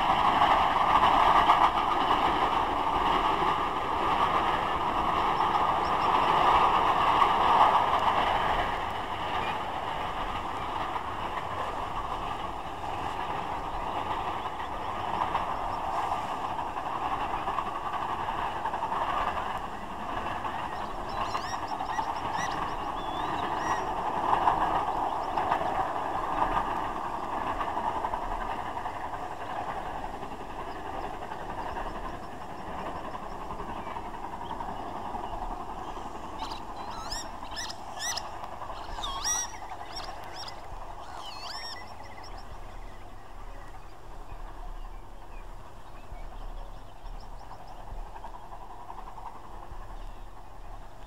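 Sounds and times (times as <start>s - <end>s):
steam locomotive rumble: 0.0s - 51.0s
birds short hooked calls: 36.4s - 42.4s.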